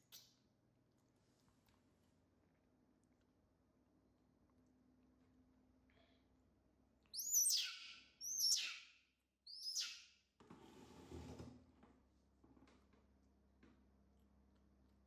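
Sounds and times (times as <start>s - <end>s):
baby macaque squealing: 7.2s - 8.9s.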